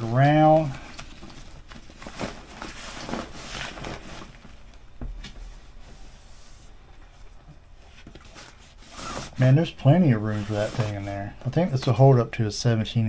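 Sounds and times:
fabric bag rustling and scraping: 0.5s - 4.8s, 7.9s - 11.3s.

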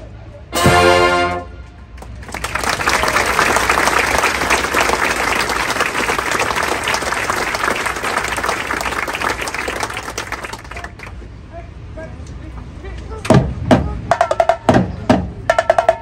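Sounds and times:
audience applauding: 2.0s - 11.2s.

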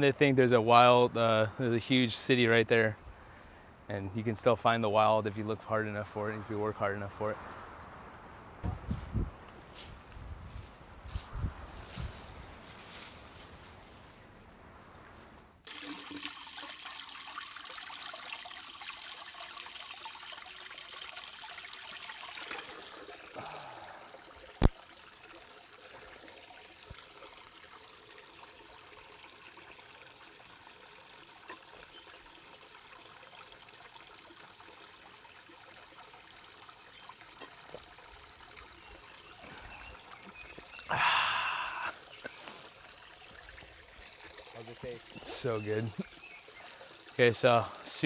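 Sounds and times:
faint trickle of spring: 15.7s - 41.0s, 41.6s - 48.0s.

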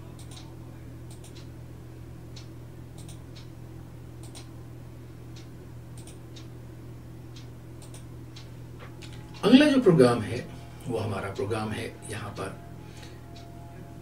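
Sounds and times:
steady low hum: 0.0s - 14.0s
faint light ticks: 4.2s - 4.5s.

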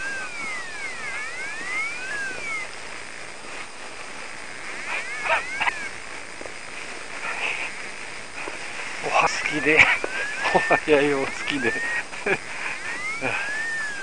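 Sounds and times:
animal whining calls: 0.0s - 2.7s, 4.6s - 6.0s, 9.1s - 14.0s.

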